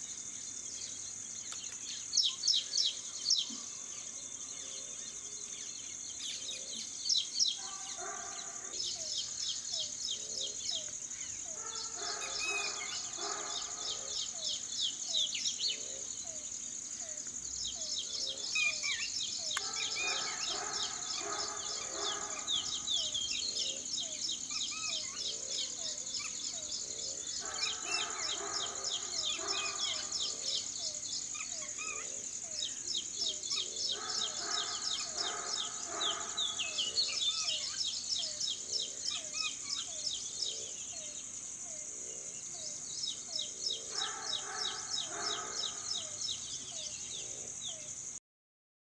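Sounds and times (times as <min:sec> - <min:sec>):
small birds chirping: 0:00.0 - 0:47.9
high insect drone: 0:00.0 - 0:48.2
lower repeated animal call: 0:11.5 - 0:14.5, 0:18.0 - 0:26.0, 0:26.6 - 0:32.3, 0:33.3 - 0:37.8.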